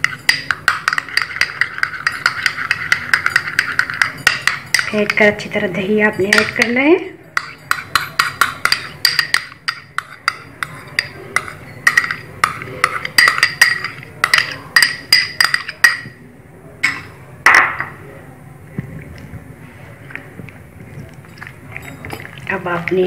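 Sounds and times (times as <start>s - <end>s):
spoon clinking on glass bowl: 0.0s - 5.3s, 6.2s - 16.2s, 21.0s - 23.0s
spoon scraping bowl: 0.0s - 5.5s, 6.1s - 16.1s, 19.8s - 23.0s.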